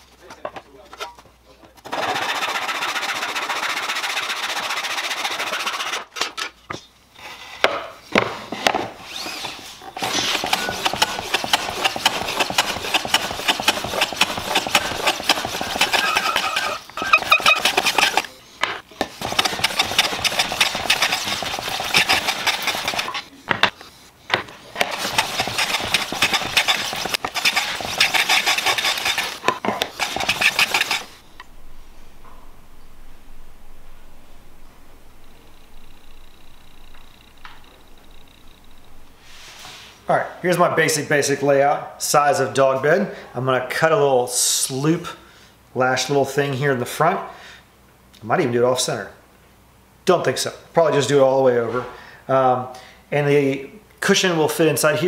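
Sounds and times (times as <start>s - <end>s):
backsaw cutting wood: 1.9s - 6.1s, 9.0s - 18.4s, 19.0s - 23.3s, 24.8s - 31.2s
hand plane shaving wood: 1.9s - 6.1s, 9.0s - 18.4s, 19.0s - 23.3s, 24.8s - 31.2s.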